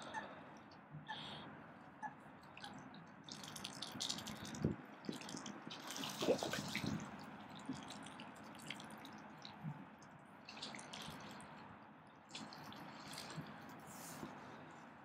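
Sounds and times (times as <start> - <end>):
water splashing and dripping: 2.4 - 11.6, 12.3 - 13.7.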